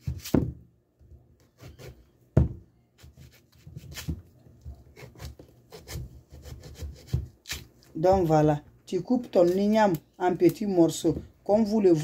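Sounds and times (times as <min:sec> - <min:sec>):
knife slicing yam: 0:00.0 - 0:00.6, 0:03.0 - 0:08.3.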